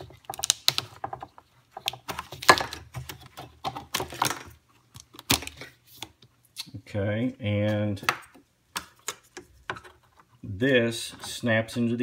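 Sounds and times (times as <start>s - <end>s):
plastic clicks and rattles: 0.0s - 5.6s.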